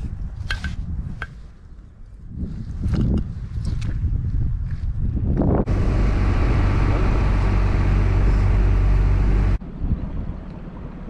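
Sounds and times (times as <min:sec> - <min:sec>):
motor humming: 0:05.7 - 0:09.6.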